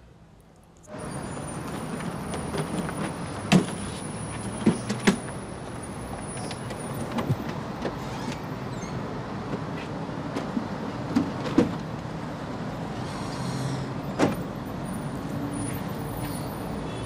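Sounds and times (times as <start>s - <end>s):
low traffic rumble: 0.0s - 17.0s
car boot clicks and knocks: 2.4s - 3.8s, 10.3s - 11.9s.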